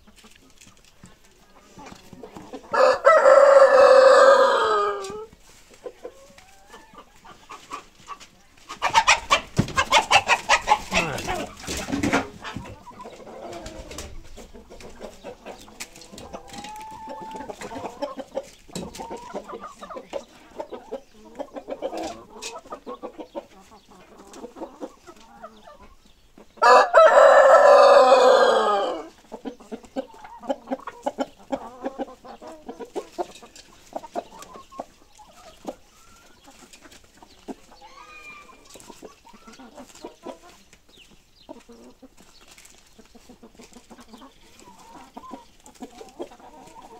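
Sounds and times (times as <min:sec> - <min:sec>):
chickens clucking: 0:00.0 - 0:46.9
rooster crowing: 0:02.7 - 0:05.1, 0:26.6 - 0:29.1.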